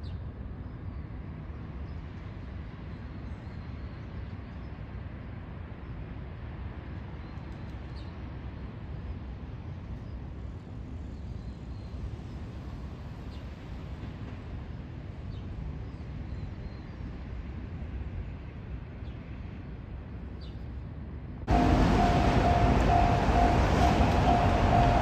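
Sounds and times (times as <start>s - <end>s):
low outdoor rumble: 21.4s - 25.0s.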